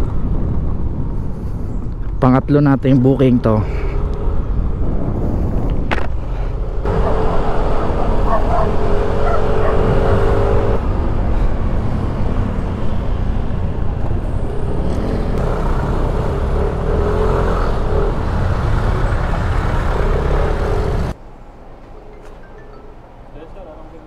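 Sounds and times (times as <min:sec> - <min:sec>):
wind over microphone: 0:00.0 - 0:15.5
road noise: 0:00.0 - 0:24.0.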